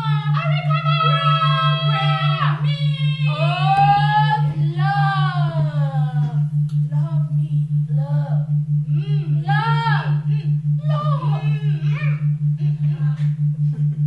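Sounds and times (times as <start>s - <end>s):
women singing wordless notes: 0.0s - 7.2s
pulsing low tone: 0.0s - 14.0s.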